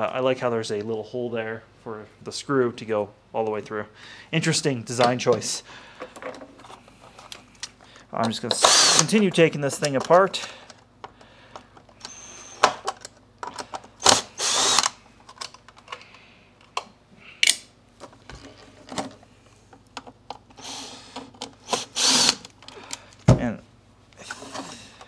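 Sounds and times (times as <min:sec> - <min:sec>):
plastic parts clicking and knocking: 0:06.0 - 0:14.2, 0:14.8 - 0:23.5
cordless drill motor whining: 0:08.6 - 0:09.0, 0:14.0 - 0:14.9, 0:21.6 - 0:22.4.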